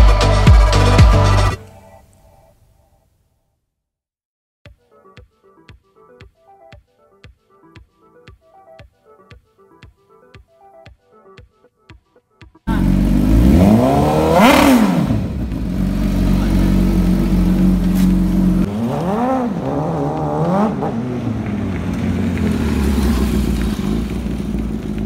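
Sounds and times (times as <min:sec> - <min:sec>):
motorcycle engine revving: 0:12.7 - 0:25.0.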